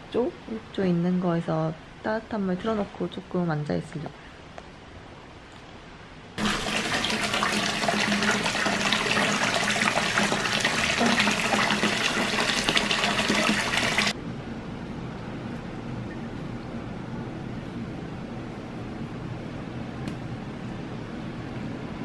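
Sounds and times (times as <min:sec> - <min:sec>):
tap water pouring into bathtub: 0:06.4 - 0:14.2.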